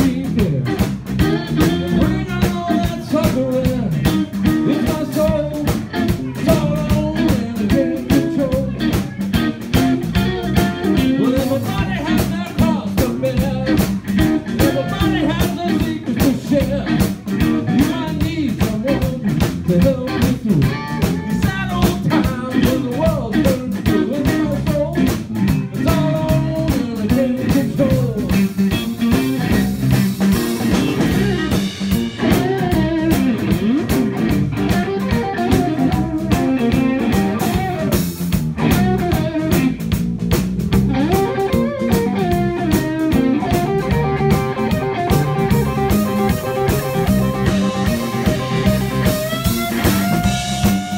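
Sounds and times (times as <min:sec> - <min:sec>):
man singing into microphone: 0:00.0 - 0:09.2, 0:10.8 - 0:13.9, 0:14.5 - 0:25.2, 0:25.8 - 0:28.8, 0:31.0 - 0:33.8
live blues band playing: 0:00.0 - 0:50.9.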